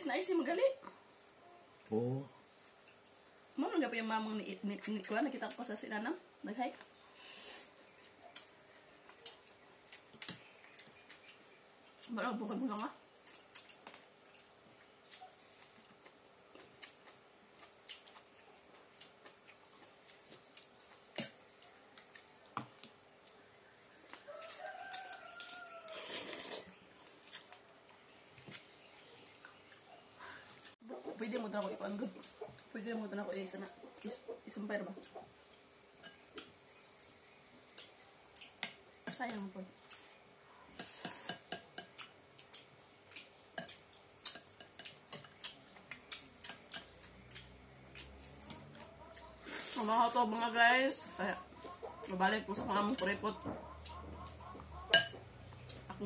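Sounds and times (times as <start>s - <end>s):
rooster crowing: 24.2s - 26.3s
slurping soup: 25.9s - 26.8s
cutlery clicking against bowls: 40.8s - 48.1s, 54.8s - 55.8s.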